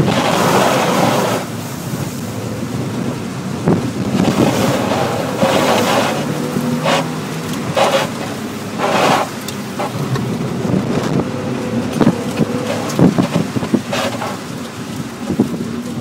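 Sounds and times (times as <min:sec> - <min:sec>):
car engine running hard: 0:00.0 - 0:16.0
tyre spray hissing: 0:07.8 - 0:10.0.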